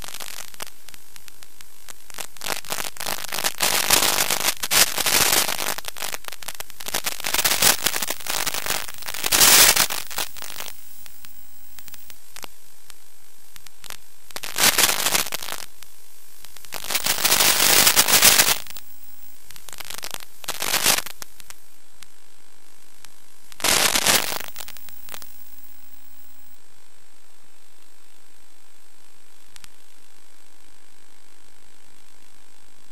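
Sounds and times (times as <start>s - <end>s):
crackling radio static: 0.0s - 22.1s, 22.9s - 26.6s.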